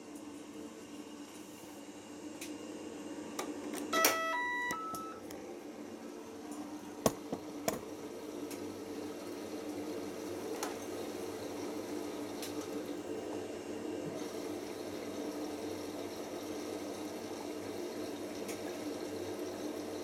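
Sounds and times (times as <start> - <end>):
faint hum: 2.0 - 9.0
washing machine mechanical clicks: 3.4 - 5.4
washing machine start chime: 3.9 - 5.3.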